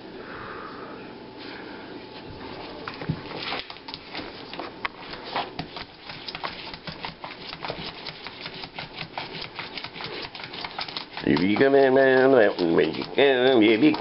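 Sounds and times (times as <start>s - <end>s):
puppy claws clicking on floor: 2.8s - 14.0s.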